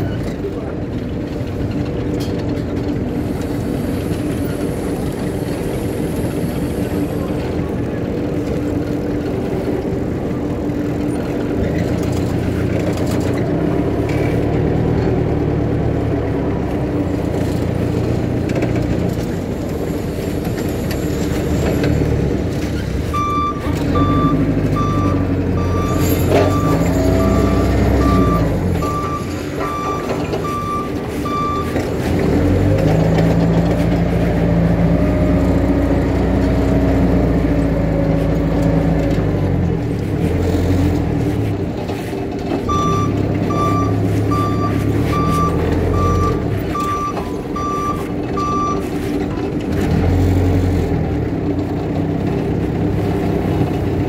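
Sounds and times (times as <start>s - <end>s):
forklift engine running: 0.0s - 54.0s
reversing alarm beeping: 23.1s - 31.8s, 42.7s - 48.8s.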